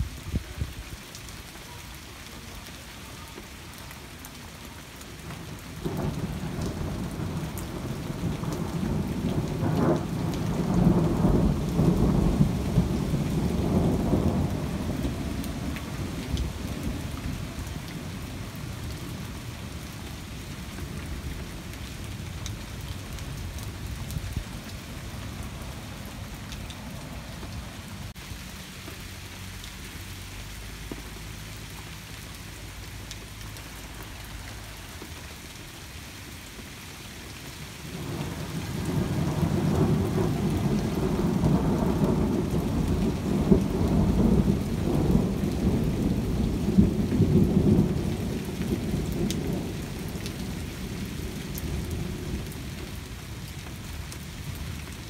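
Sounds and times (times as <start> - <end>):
steady rain: 0.0 - 55.0
thunder rumbling: 5.8 - 19.8, 37.9 - 53.0.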